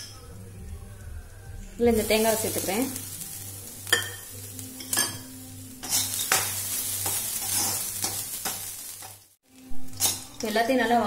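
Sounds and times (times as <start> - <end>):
sizzling hiss: 0.0 - 11.0
spoon scraping in a pan: 2.5 - 9.3.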